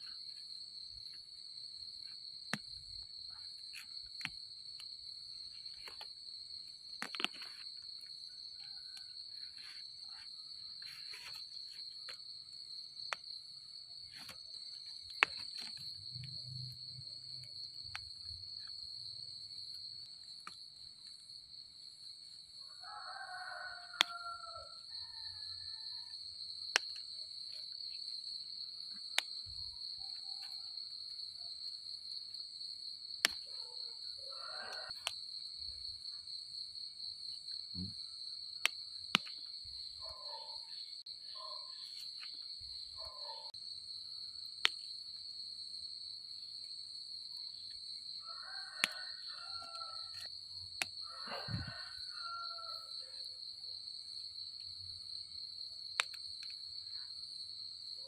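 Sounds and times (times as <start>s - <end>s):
night insects trilling: 0.0s - 58.0s
sharp clicks of mushrooms picked: 2.4s - 10.2s, 14.0s - 18.8s, 23.9s - 24.7s, 26.6s - 28.0s, 33.2s - 33.6s, 34.7s - 35.4s, 38.6s - 40.4s, 48.8s - 52.1s, 55.9s - 56.6s.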